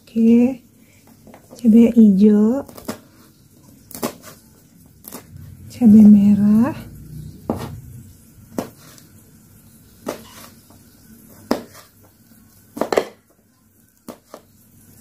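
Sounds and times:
knife hitting cutting board: 8.6 - 8.8, 10.0 - 10.5, 11.4 - 11.8, 12.8 - 13.2.

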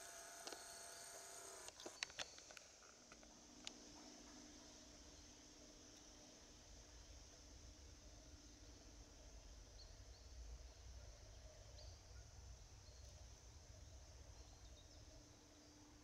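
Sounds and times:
steady high hiss: 0.0 - 16.0.

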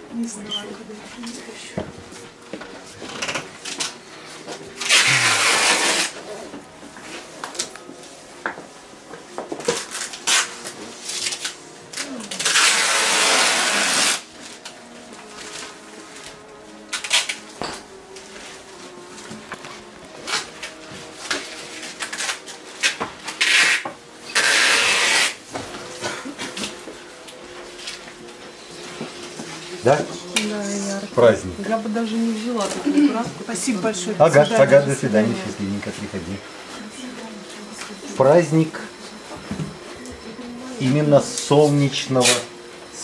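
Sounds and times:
loud rustling rub: 4.0 - 7.4
palette knife scraping canvas: 4.8 - 6.2.

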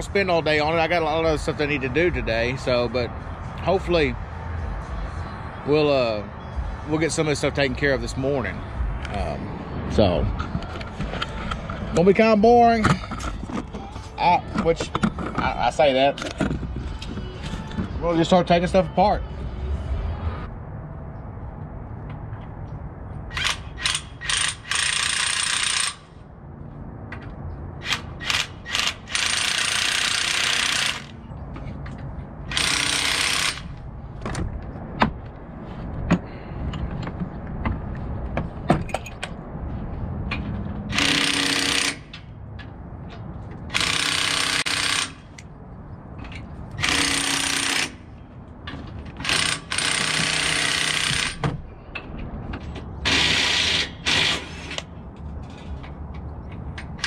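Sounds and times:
metal clicks and clanks of tools: 12.8 - 17.9, 46.2 - 48.0, 54.1 - 57.0
impact wrench bursts: 23.3 - 26.2, 27.8 - 31.2, 32.5 - 33.8, 40.9 - 42.2, 43.7 - 45.4, 46.8 - 48.1, 49.2 - 51.5, 53.0 - 54.8.

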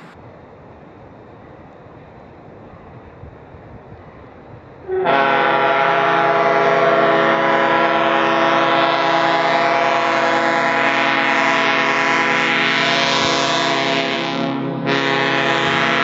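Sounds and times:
locomotive air horn chord: 4.9 - 16.0.

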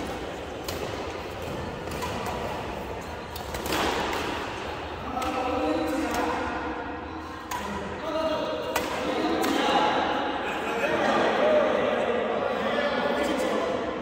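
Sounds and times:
rackets striking shuttlecock: 0.0 - 6.8, 7.4 - 8.0, 8.6 - 10.0
people talking: 5.0 - 6.5, 7.4 - 14.0.

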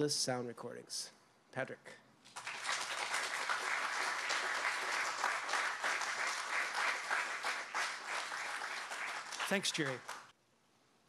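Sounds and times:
audience applauding: 2.3 - 10.3.

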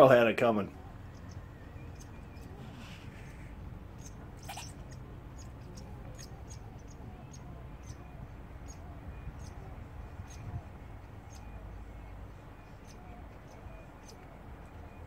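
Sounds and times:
low steady rumble: 0.0 - 15.0
small animal high-pitched chirps: 1.0 - 15.0.

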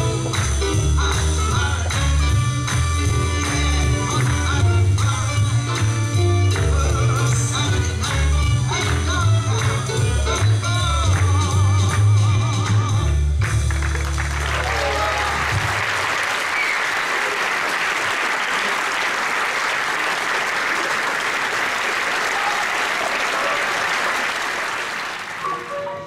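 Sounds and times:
audience applauding: 13.4 - 25.8
cheering voices: 14.3 - 25.7.

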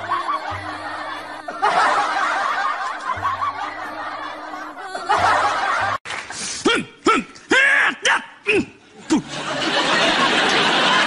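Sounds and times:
group of people laughing: 0.0 - 6.0, 8.9 - 11.0
background music: 0.0 - 11.0.

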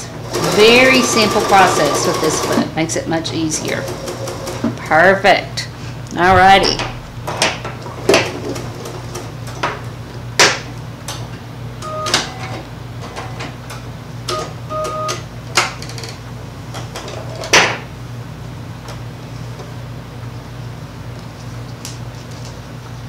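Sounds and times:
steady low hum: 5.2 - 9.3.

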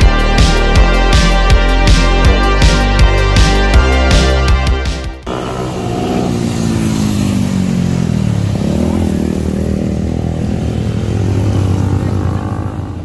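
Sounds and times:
motorcycles riding past: 5.3 - 13.0.

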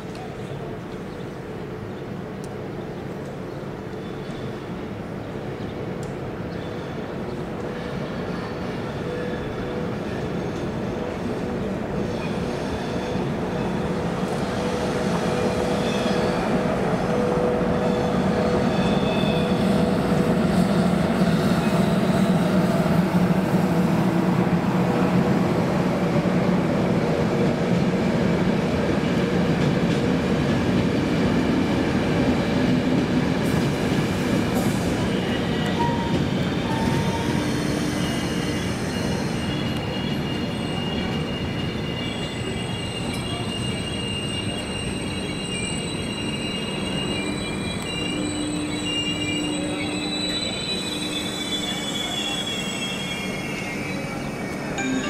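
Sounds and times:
train wheels rumbling on rails: 0.0 - 54.8
brake and wheel squeals: 34.7 - 54.5.

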